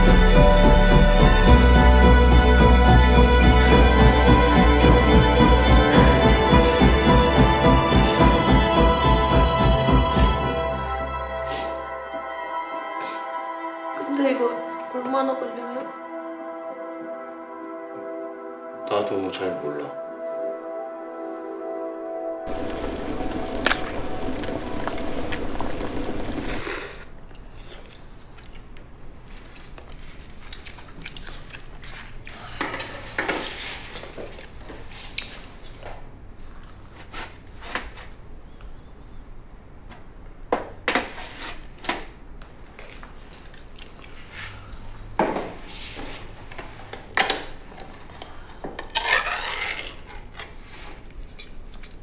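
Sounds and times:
music: 0.0 - 26.6
tableware clinking and knocking: 45.2 - 45.6.

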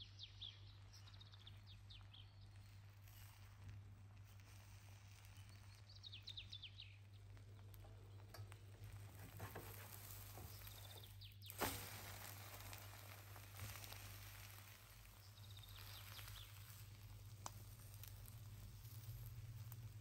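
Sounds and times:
egg frying in a pan: 1.8 - 20.0
plastic spatula scraping a pan: 8.8 - 11.1.

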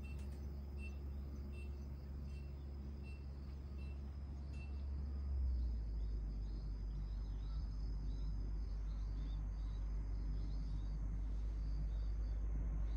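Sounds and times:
insects chirping: 0.0 - 12.4
steady low rumble: 0.0 - 12.9.

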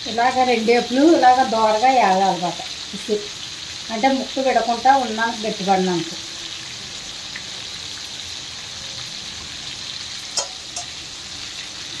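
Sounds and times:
fish frying in hot oil: 0.0 - 12.0.

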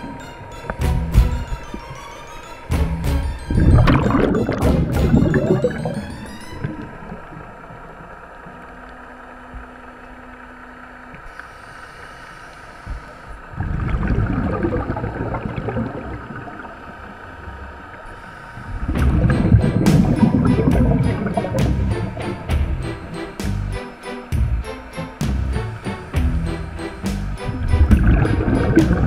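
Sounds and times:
faint underwater hum: 0.0 - 29.0
scuba exhaust bubbling: 3.3 - 9.7, 11.2 - 22.3, 27.5 - 29.0.

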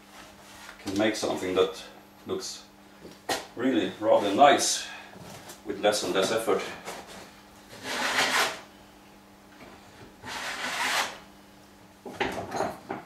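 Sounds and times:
hand plane shaving wood: 7.8 - 8.6, 10.2 - 11.2.

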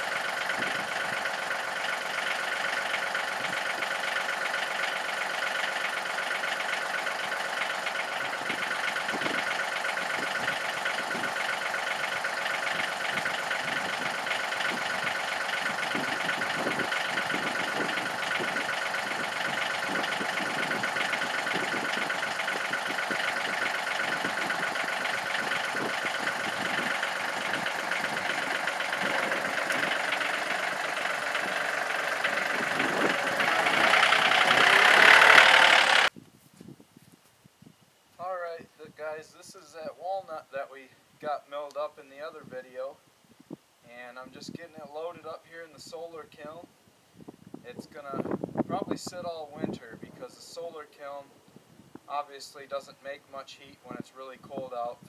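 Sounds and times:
diesel engine idling: 0.0 - 36.1.

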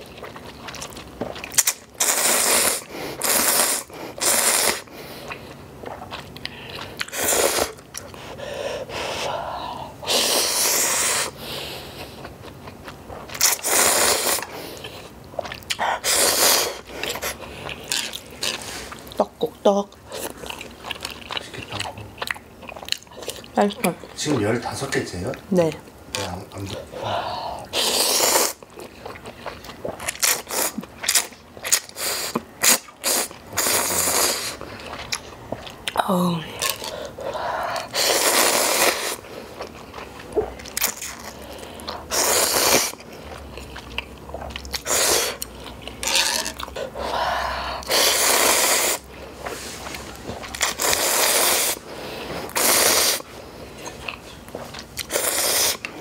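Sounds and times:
quiet chewing: 0.0 - 2.2, 2.8 - 8.4, 11.4 - 24.4, 28.4 - 36.0, 36.6 - 47.1, 47.8 - 56.0
person slurping noodles: 2.0 - 4.9, 13.4 - 14.6, 16.0 - 17.4, 27.6 - 28.6, 32.0 - 34.6, 37.8 - 39.2, 42.0 - 43.0, 44.8 - 45.4, 46.0 - 49.8, 50.6 - 51.8, 52.5 - 53.2, 55.0 - 55.8.

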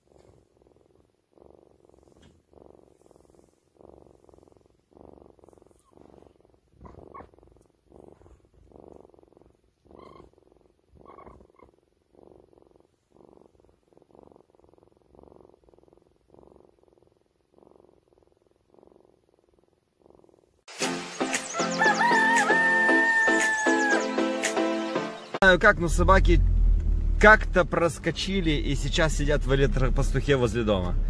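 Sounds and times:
cat purring: 0.0 - 20.7.

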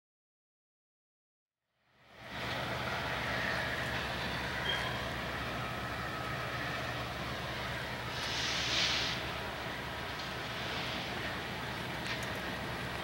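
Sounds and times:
diesel locomotive engine hum: 1.7 - 13.0
train rumble: 2.0 - 13.0
faint high squeal: 4.6 - 5.1.

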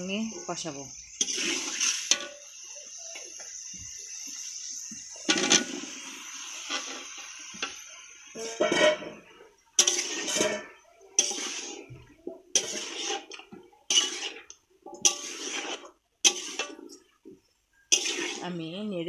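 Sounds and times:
utensil scraping a pan: 0.2 - 2.7, 6.6 - 18.7.

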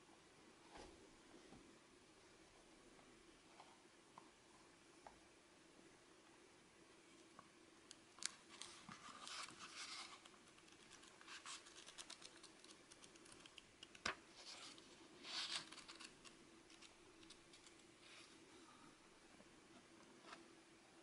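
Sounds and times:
notebook pages flipping: 8.2 - 17.9.

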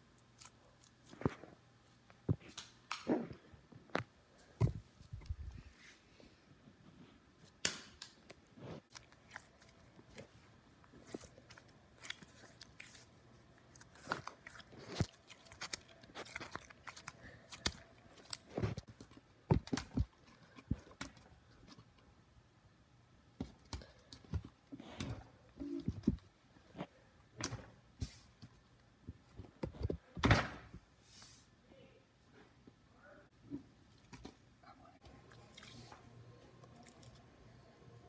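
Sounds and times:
faint low hum: 31.6 - 38.0.

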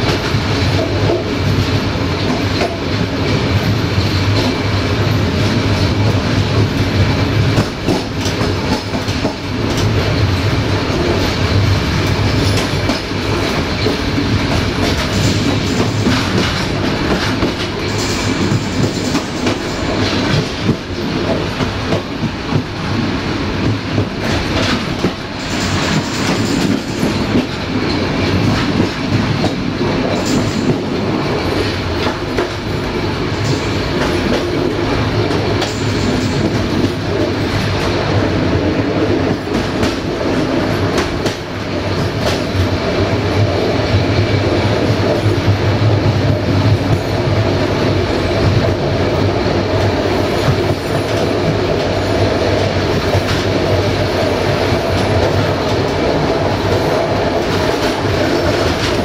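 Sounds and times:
train rolling rumble: 0.0 - 59.0.

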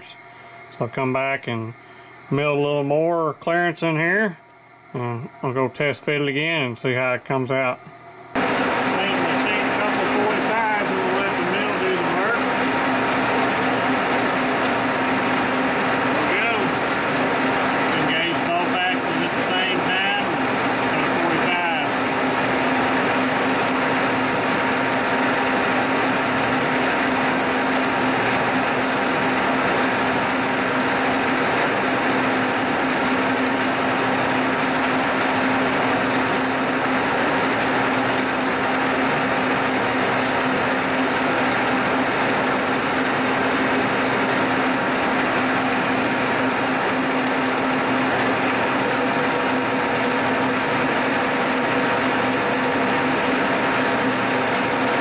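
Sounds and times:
milling machine cutting metal: 8.4 - 55.0.

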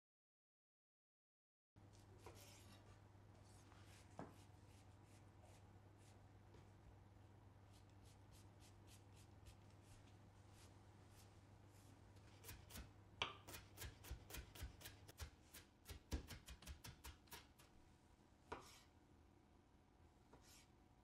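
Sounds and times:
knife chopping on cutting board: 12.4 - 17.6.

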